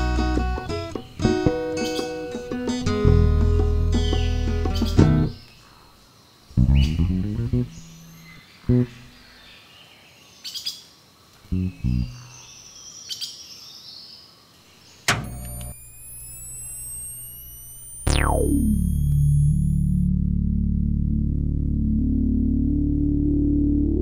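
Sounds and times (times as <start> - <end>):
low plucked bass notes: 6.6 - 8.0, 11.5 - 12.2, 18.1 - 24.0
bird chirps: 14.7 - 19.8
click: 15.0 - 19.7
rising electronic whine: 15.1 - 24.0
swooping whistle: 15.3 - 20.0.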